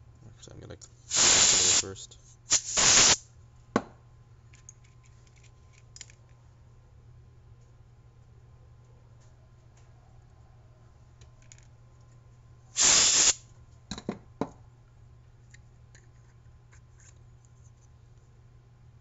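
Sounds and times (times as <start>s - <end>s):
loud hiss: 1.1s - 1.9s, 2.5s - 3.2s, 12.8s - 13.4s.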